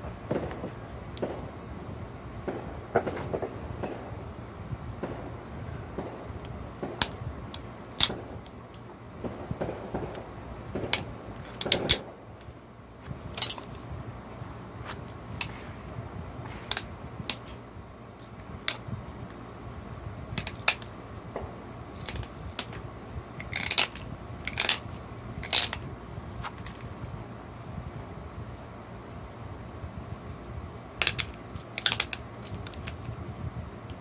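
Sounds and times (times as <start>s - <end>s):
stone flakes clicking and snapping: 23.4s - 25.8s, 31.0s - 33.2s.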